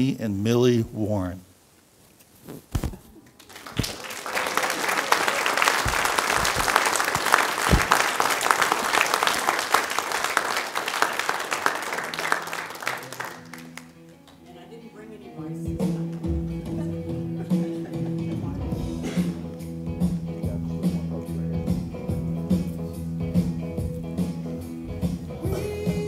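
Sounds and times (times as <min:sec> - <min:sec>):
crowd applauding: 0:03.2 - 0:14.5.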